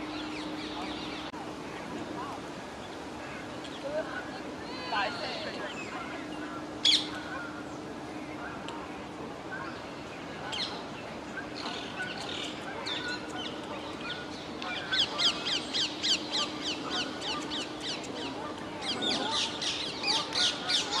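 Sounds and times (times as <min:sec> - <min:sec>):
parakeets screeching: 0:11.6 - 0:21.0.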